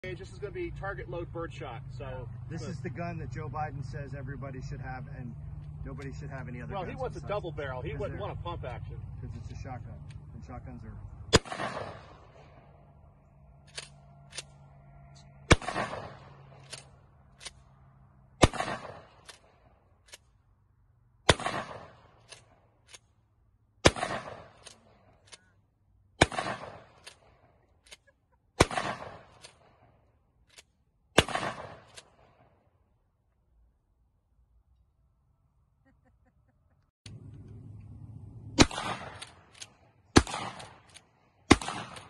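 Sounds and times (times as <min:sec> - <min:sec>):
shotgun shots echoing: 0:11.3 - 0:12.7, 0:15.3 - 0:16.9, 0:18.4 - 0:19.6, 0:21.2 - 0:22.6, 0:23.8 - 0:25.2, 0:26.2 - 0:27.5, 0:28.6 - 0:29.9, 0:31.1 - 0:32.5, 0:38.6 - 0:42.0.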